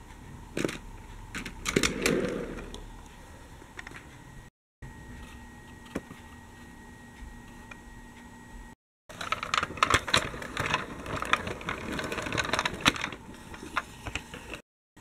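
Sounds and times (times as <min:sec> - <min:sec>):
toy tram wheels clicking on track: 0:09.1 - 0:13.2.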